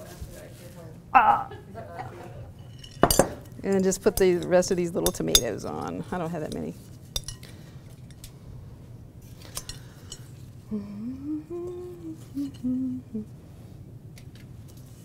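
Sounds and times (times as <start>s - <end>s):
clinks against glass bowl: 2.7s - 3.5s
person humming: 10.7s - 13.4s.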